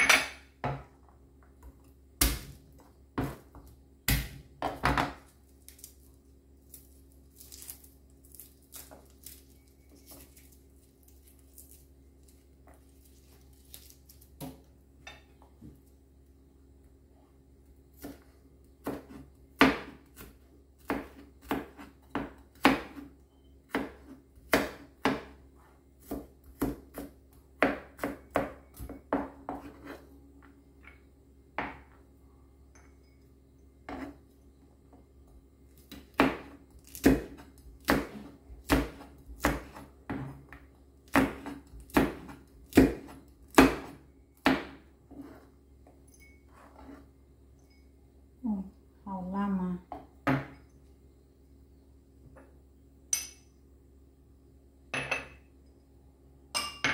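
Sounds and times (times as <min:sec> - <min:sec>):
knife chopping on plastic board: 0:18.0 - 0:23.1, 0:23.7 - 0:25.4, 0:26.0 - 0:30.0, 0:35.9 - 0:45.4.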